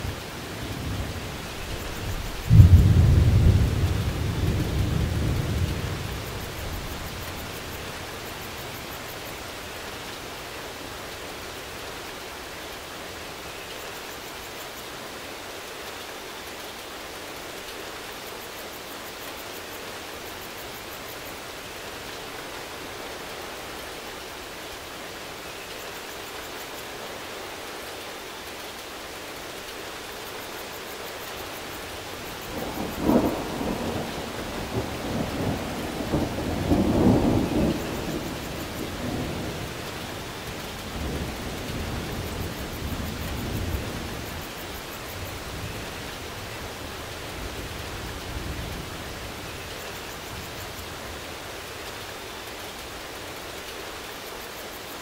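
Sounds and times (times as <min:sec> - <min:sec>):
steady rain falling: 0:00.0 - 0:55.0
thunder rumbling: 0:00.1 - 0:07.5, 0:32.3 - 0:44.7.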